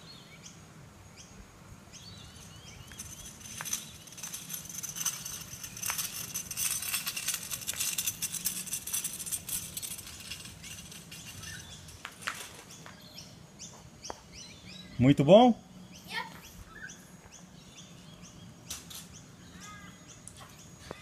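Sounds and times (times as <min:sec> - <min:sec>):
kick scooter rolling on asphalt: 0:02.0 - 0:14.7.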